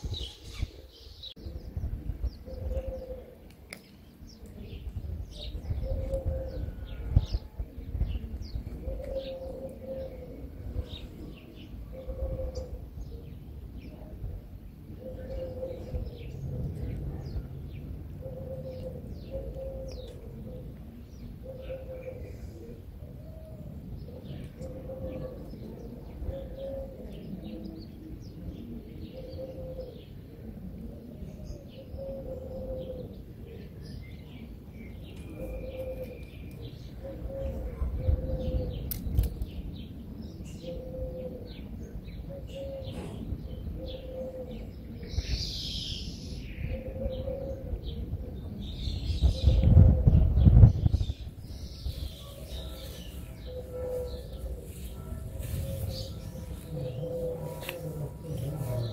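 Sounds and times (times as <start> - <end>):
dove cooing: 2.3 - 3.5, 4.6 - 14.1, 14.9 - 38.9, 40.4 - 45.6, 46.3 - 58.9
small birds chirping: 31.1 - 58.9.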